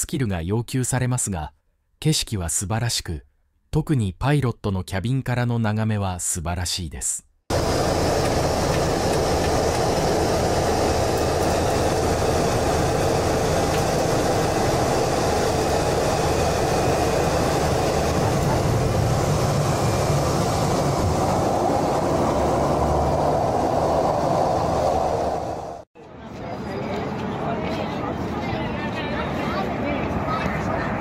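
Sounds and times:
light aircraft engine and airflow: 7.5s - 31.0s.

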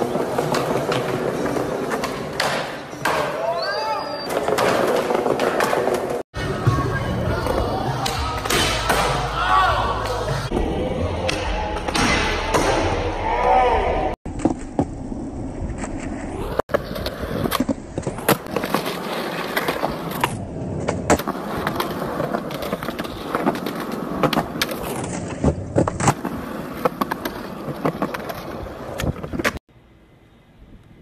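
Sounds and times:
skateboard wheels rolling on concrete: 0.0s - 8.0s, 14.3s - 31.0s.

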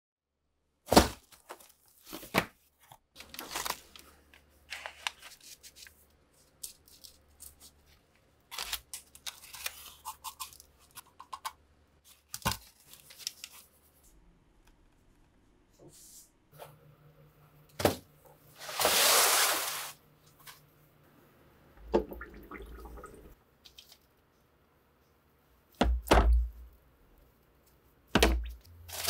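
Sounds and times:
cardboard and paper rustling: 0.9s - 11.0s, 12.0s - 13.8s.

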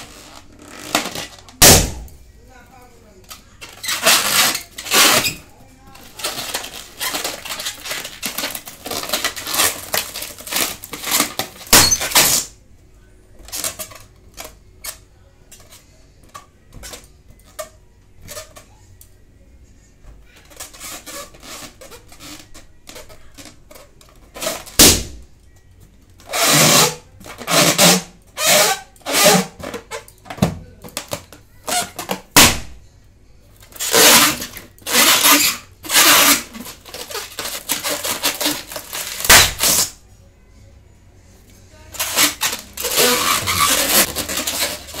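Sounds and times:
balloons squeaking and rubbing: 0.0s - 2.1s, 3.5s - 12.5s, 20.3s - 25.3s, 26.2s - 30.2s, 31.0s - 32.7s, 33.6s - 40.0s, 41.9s - 45.0s
balloon pops: 0.8s - 2.2s, 24.4s - 25.2s, 32.1s - 32.8s, 39.2s - 39.9s.

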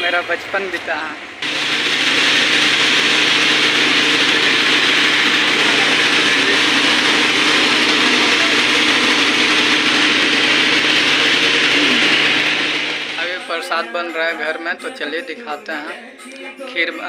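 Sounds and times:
flour mill grinding grain: 1.4s - 13.7s.

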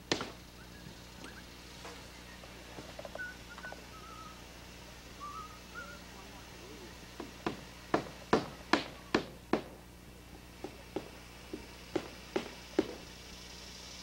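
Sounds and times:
hammer striking nails: 7.2s - 9.8s.

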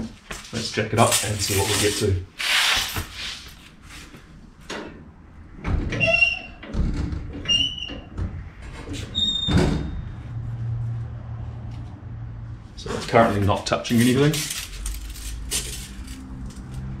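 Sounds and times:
suspension squeaking and creaking: 5.6s - 10.4s
suspension squealing: 7.4s - 10.4s.

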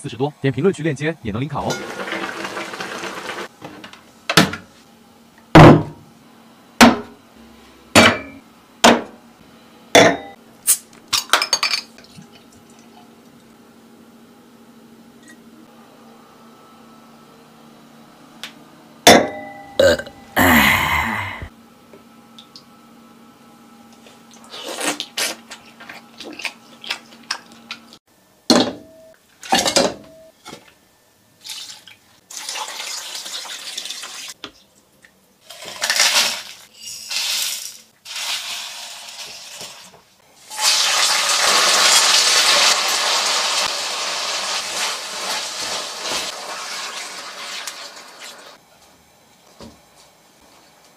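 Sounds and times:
pots and utensils clinking: 1.7s - 3.4s
spices sizzling in oil: 36.8s - 48.6s.

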